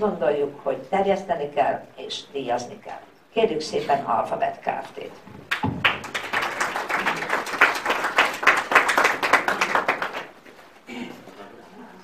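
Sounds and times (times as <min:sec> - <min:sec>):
audience applauding: 0:05.5 - 0:10.4.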